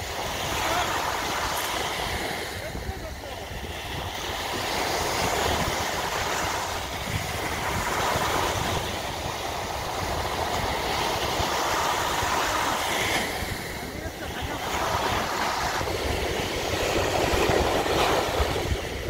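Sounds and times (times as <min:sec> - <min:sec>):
small waves breaking on shore: 0:00.0 - 0:19.0.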